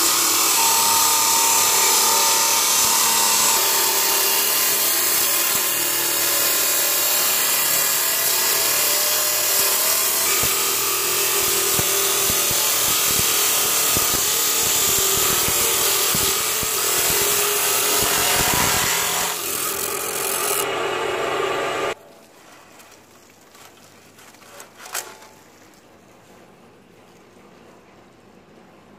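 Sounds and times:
cut-off wheel grinding steel: 0:00.0 - 0:22.0.

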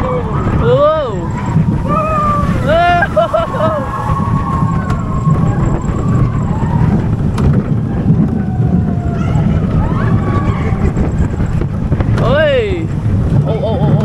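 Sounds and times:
ride rumbling: 0:00.0 - 0:14.0
wind buffeting microphone: 0:00.0 - 0:14.0.

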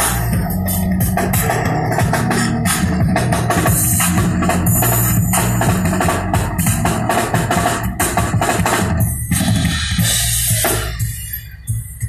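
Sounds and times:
drum kit playing: 0:00.0 - 0:12.0
steady bass line: 0:00.0 - 0:12.0.

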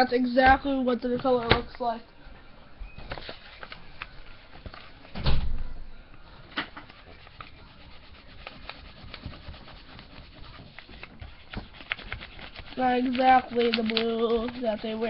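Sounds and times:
crayon scribbling on paper: 0:06.8 - 0:15.0.

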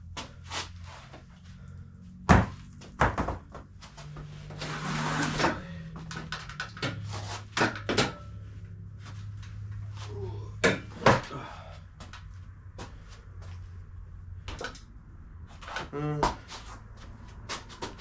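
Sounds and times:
low hum: 0:00.0 - 0:18.0
gym equipment knocks and thuds: 0:02.2 - 0:03.8, 0:05.5 - 0:08.3, 0:10.6 - 0:11.5.

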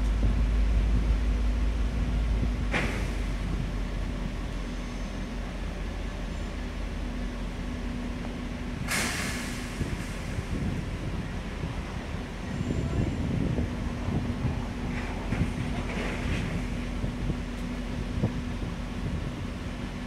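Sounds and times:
diesel engine rumbling: 0:00.0 - 0:20.0
short air hisses: 0:08.8 - 0:10.5.

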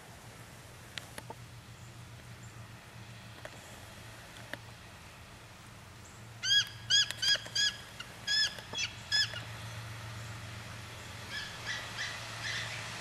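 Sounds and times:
eagle high piping calls: 0:06.4 - 0:09.5, 0:11.2 - 0:12.9.

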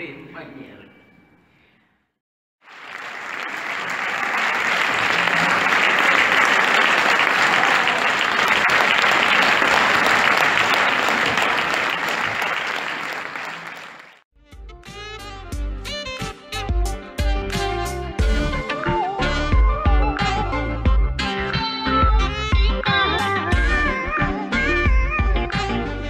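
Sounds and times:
audience applauding: 0:02.6 - 0:14.2
music: 0:14.4 - 0:26.0.

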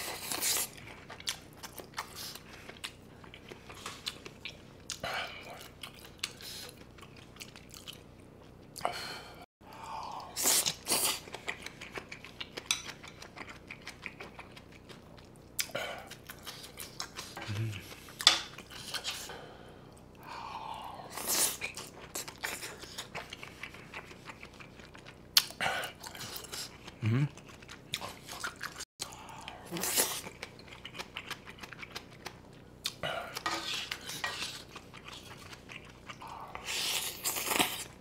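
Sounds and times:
close chewing: 0:00.0 - 0:08.9, 0:10.2 - 0:19.3, 0:21.1 - 0:38.0
spoon scraping a grill pan: 0:33.4 - 0:34.6.

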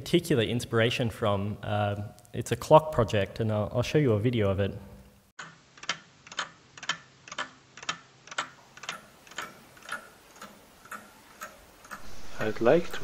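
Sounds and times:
clock ticking: 0:05.4 - 0:13.0.

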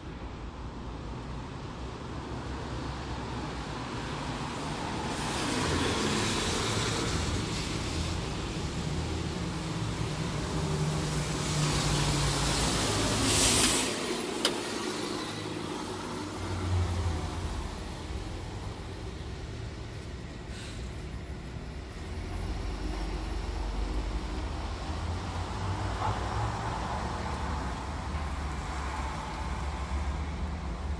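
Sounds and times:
city street traffic: 0:00.0 - 0:30.9
bus engine running: 0:06.4 - 0:30.9
air brakes hissing: 0:12.5 - 0:15.4, 0:20.4 - 0:21.2.

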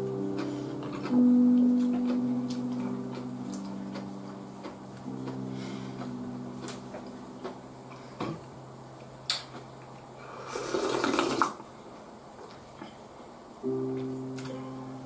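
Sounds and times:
person slurping broth: 0:10.3 - 0:11.5
low hum of several tones: 0:13.6 - 0:15.0.

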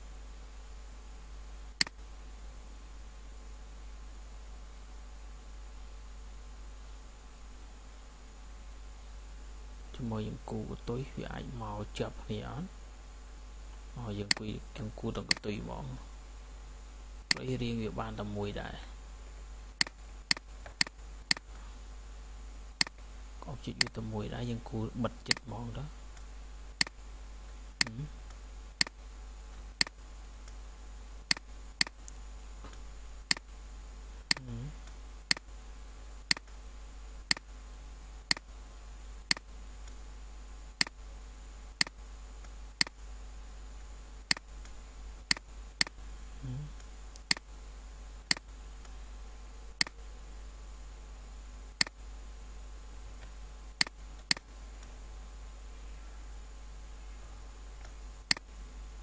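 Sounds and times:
computer mouse clicking: 0:15.3 - 0:15.5, 0:19.8 - 0:21.5, 0:25.3 - 0:25.5, 0:31.3 - 0:32.2, 0:33.3 - 0:33.5, 0:36.3 - 0:36.6, 0:39.3 - 0:40.0, 0:44.3 - 0:46.0, 0:53.2 - 0:54.9, 0:57.8 - 0:58.5.

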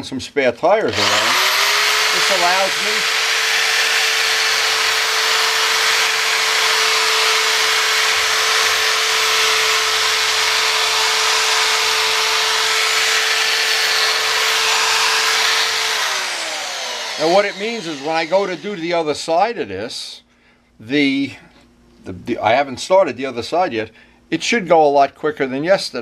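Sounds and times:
electric drill motor whine: 0:00.9 - 0:19.1.

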